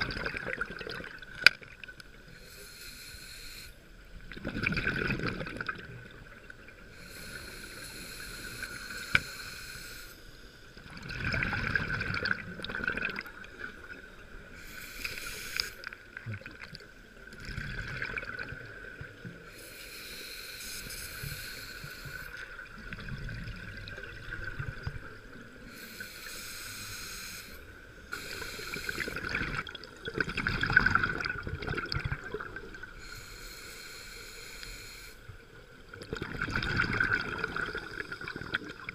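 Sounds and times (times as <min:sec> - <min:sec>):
exhaled bubbles rumbling: 0:00.0 - 0:01.8, 0:04.2 - 0:06.8, 0:10.8 - 0:14.4, 0:16.0 - 0:19.2, 0:22.4 - 0:25.6, 0:28.8 - 0:33.0, 0:36.0 - 0:38.9
regulator hissing inhalations: 0:02.2 - 0:03.9, 0:06.9 - 0:10.7, 0:14.6 - 0:16.1, 0:19.4 - 0:22.6, 0:25.6 - 0:29.4, 0:32.9 - 0:35.3.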